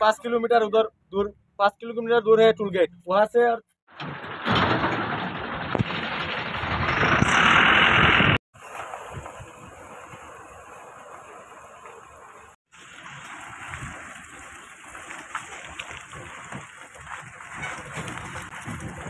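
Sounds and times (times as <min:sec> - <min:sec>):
truck wheels rushing in mud: 0:03.9 - 0:19.0
tyres splashing through mud: 0:03.9 - 0:19.0.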